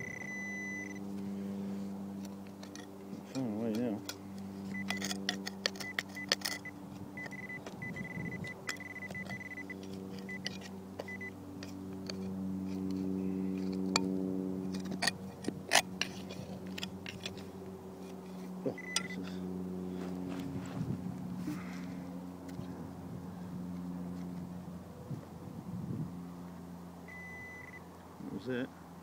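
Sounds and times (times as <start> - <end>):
high-pitched beep tone: 0.0 - 1.0, 7.2 - 9.7, 18.8 - 19.1, 27.1 - 27.8
steady low hum: 0.0 - 29.0
digger blade striking stones: 4.7 - 13.0, 14.7 - 17.4, 18.8 - 19.2.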